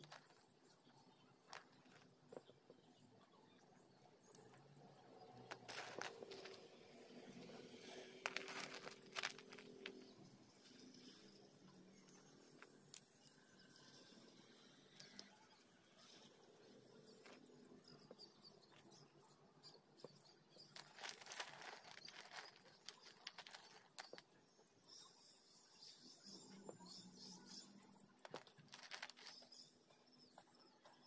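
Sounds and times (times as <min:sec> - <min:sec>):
clay chunks clicking in metal bowl: 0:08.2 - 0:10.1, 0:20.6 - 0:24.3, 0:28.2 - 0:29.6.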